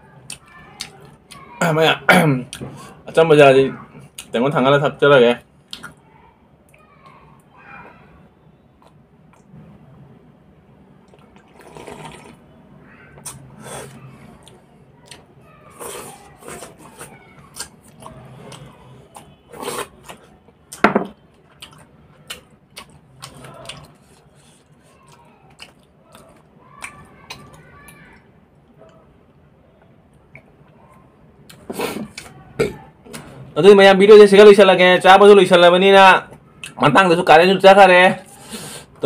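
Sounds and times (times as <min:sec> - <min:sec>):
slurping and swallowing: 0:11.1 - 0:12.4.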